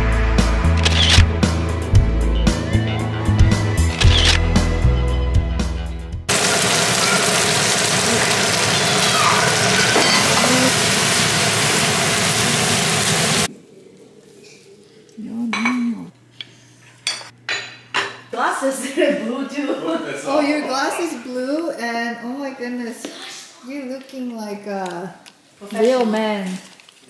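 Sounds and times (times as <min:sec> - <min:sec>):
vegetables sizzling in a frying pan: 0:06.3 - 0:13.5.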